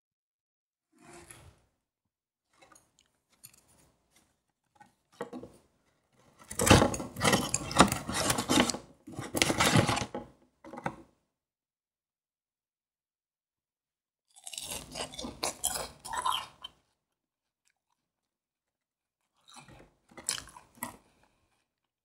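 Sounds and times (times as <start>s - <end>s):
cardboard scraping and crinkling: 3.7s - 10.3s.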